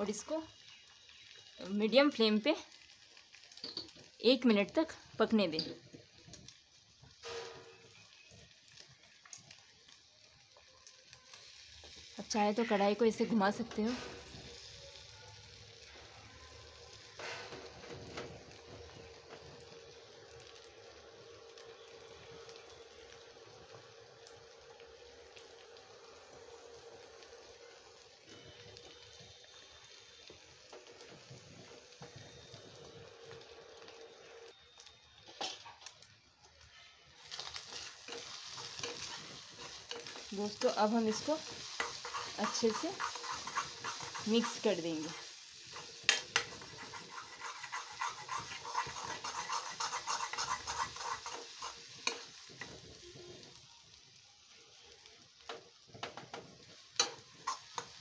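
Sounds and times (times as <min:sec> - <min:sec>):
egg sizzling in oil: 0:00.0 - 0:58.0
metal spatula scraping a pan: 0:17.2 - 0:18.0, 0:37.3 - 0:52.8, 0:57.0 - 0:58.0.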